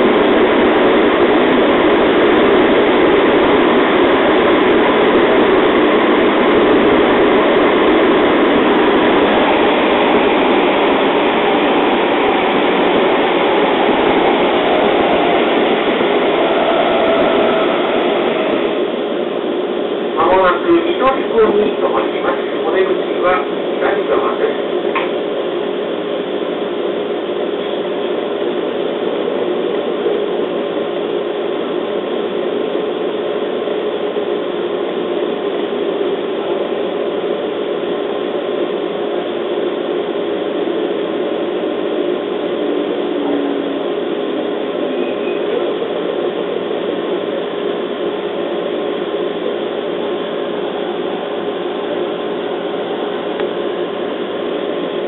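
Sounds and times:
low motor hum: 0.0s - 20.2s
train wheels rumbling on rail: 0.0s - 55.0s.

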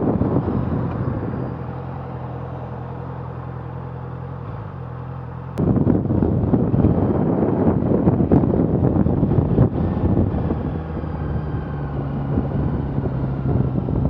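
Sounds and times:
wind on microphone: 0.0s - 3.1s, 5.6s - 14.0s
motorcycle engine idling: 0.0s - 9.5s.

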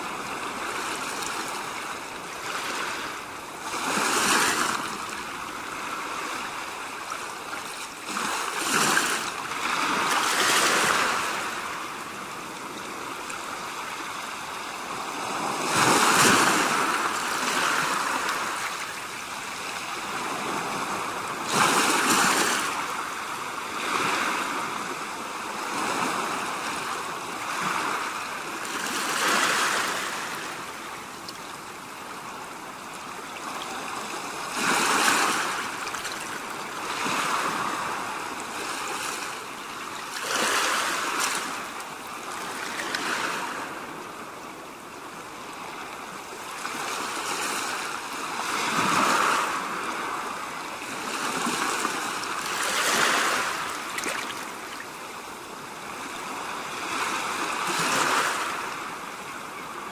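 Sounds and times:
sea waves breaking: 0.0s - 59.5s.

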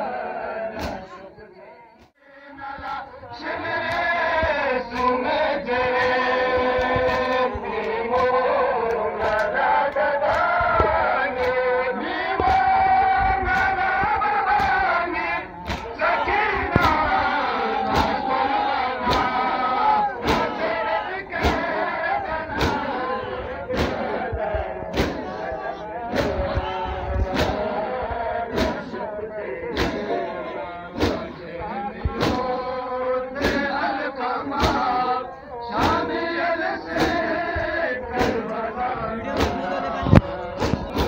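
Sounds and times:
men chanting a lament: 0.0s - 41.0s
hands striking chests: 15.7s - 16.0s, 17.8s - 18.3s, 19.0s - 19.4s, 20.2s - 20.6s, 21.4s - 21.8s, 22.6s - 23.0s, 23.8s - 24.1s, 24.9s - 25.4s, 31.0s - 31.4s, 38.1s - 38.5s, 39.3s - 39.7s.

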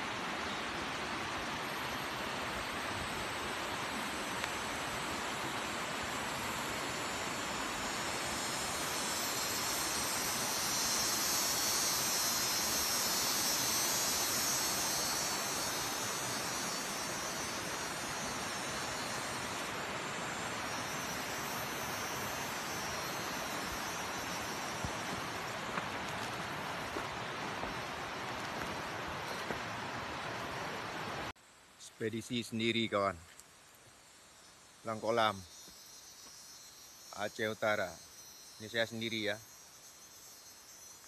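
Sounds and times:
small ticks: 4.4s - 4.6s.

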